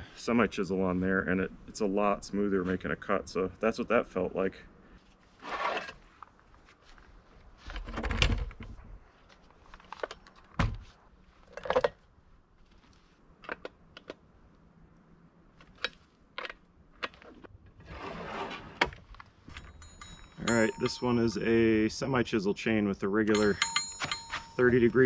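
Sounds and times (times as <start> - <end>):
metallic clicks and clinks: 19.5 - 22.0, 23.3 - 25.0.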